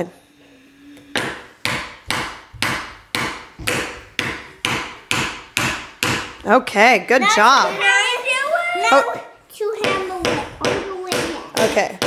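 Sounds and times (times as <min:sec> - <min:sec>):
mallet hammering nail into wood: 0:01.2 - 0:06.4, 0:09.8 - 0:12.0.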